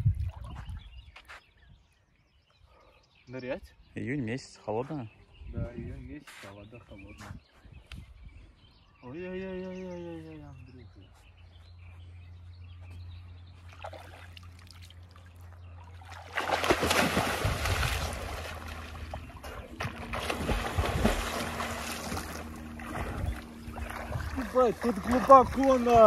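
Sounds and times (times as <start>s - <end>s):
swimming strokes splashing: 13.6s - 26.0s
person splashing into water: 13.7s - 15.2s, 15.9s - 26.0s.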